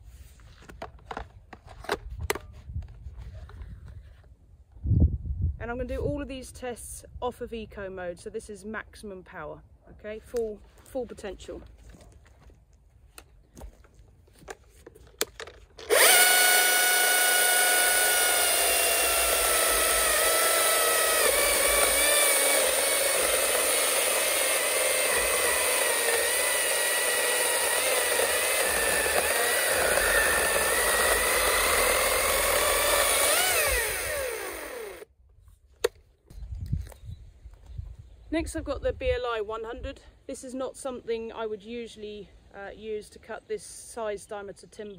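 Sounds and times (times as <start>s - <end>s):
chainsaw cutting log: 15.8s - 35.1s.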